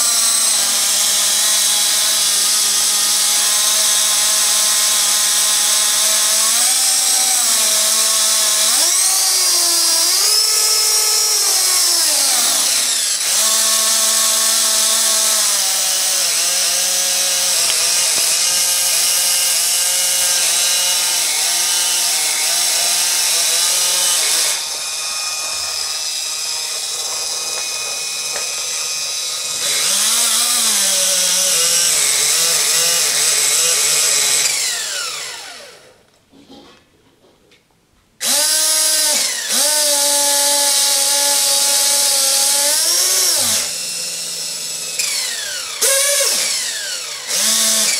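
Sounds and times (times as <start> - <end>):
helicopter motor and gears whining: 0.0 - 35.7.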